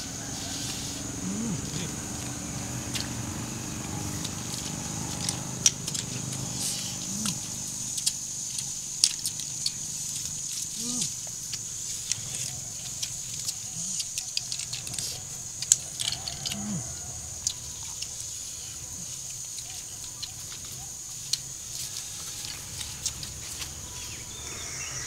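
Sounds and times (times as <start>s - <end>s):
person humming low: 0.5s - 7.8s, 10.7s - 11.2s, 16.5s - 17.0s.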